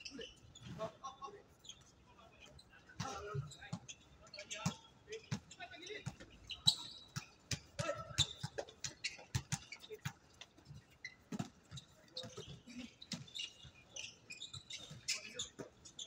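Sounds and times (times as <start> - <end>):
sneaker squeaks: 0.0 - 16.0
basketball bouncing: 4.6 - 13.7.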